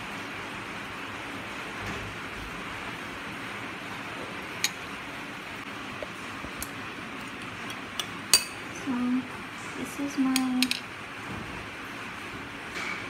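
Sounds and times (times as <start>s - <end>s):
metal spoon clinking on plates: 7.7s - 8.7s.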